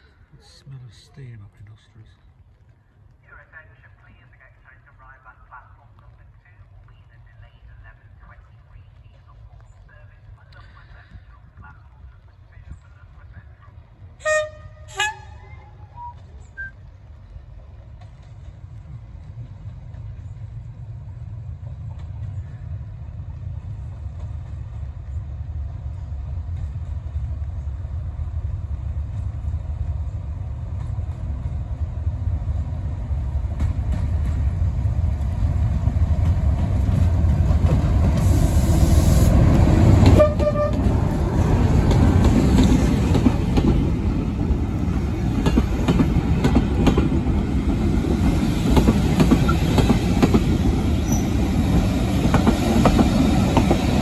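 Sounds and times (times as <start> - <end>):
diesel locomotive rumble: 0.0 - 54.0
locomotive horn toot: 14.2 - 16.1, 40.1 - 40.9
short honks: 40.2 - 40.9.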